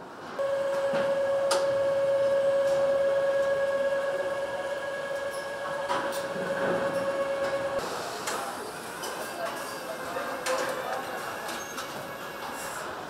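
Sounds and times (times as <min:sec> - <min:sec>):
machine tone: 0:00.4 - 0:08.0.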